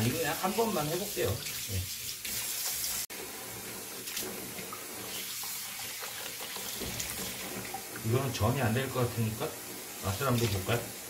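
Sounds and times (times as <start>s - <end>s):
leaves rinsed with splashes: 0.0s - 11.0s
tap running into basin: 4.0s - 8.4s.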